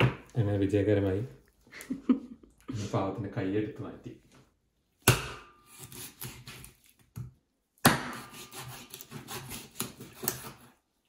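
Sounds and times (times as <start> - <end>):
rubbing and scraping on board: 8.2 - 10.8.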